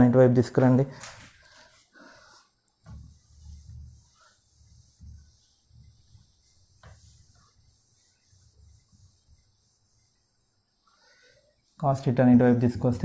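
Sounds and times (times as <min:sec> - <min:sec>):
eraser rubbing on whiteboard: 0:01.7 - 0:11.8.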